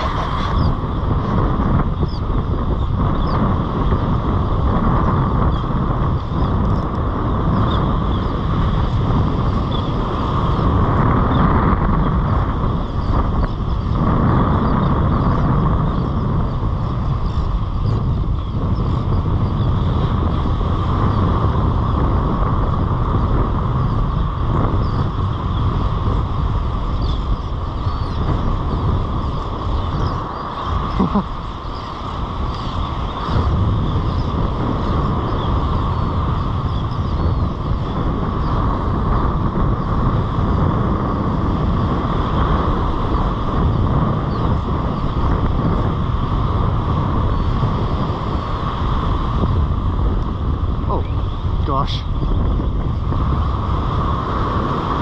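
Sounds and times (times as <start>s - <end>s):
surf breaking on beach: 0.0s - 2.6s
wind buffeting microphone: 0.0s - 55.0s.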